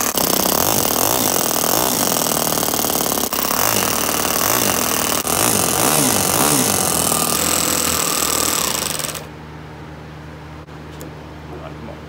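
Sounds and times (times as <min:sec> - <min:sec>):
model engine running fast: 0:00.0 - 0:09.3.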